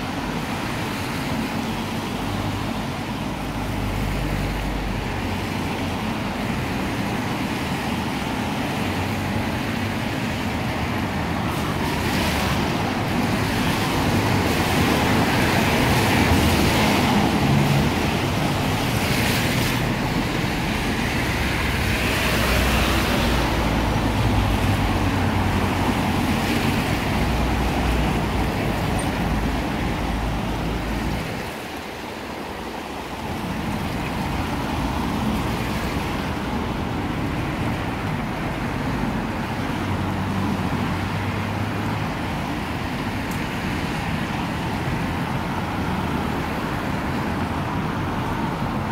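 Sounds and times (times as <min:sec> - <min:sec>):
cars swishing past on wet road: 0:00.0 - 0:48.9.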